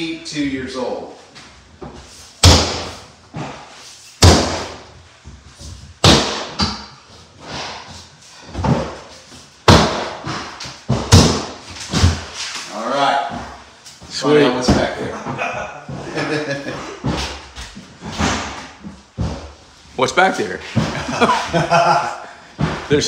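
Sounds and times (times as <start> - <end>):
heavy blows against wall: 2.4 - 12.4.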